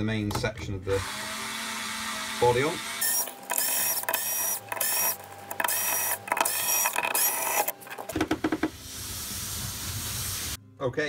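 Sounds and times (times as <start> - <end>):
electric screwdriver whining: 1.0 - 8.2.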